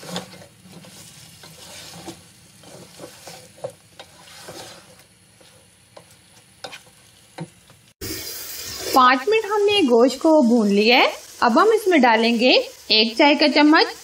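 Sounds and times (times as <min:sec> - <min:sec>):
wooden spatula scraping a pot: 0:00.0 - 0:07.6
meat sizzling in oil: 0:00.0 - 0:14.0.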